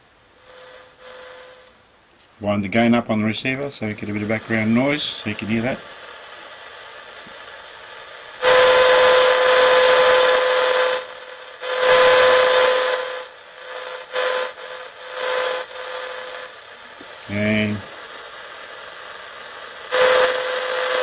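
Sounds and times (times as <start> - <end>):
radio receiver hiss: 0.0 - 21.0
steady tone: 8.3 - 18.1.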